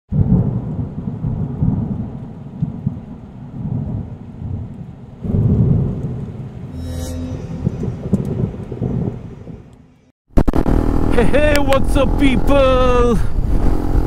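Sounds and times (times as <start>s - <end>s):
rain: 0.1s - 6.7s
rolling thunder: 0.1s - 6.7s, 7.6s - 9.7s.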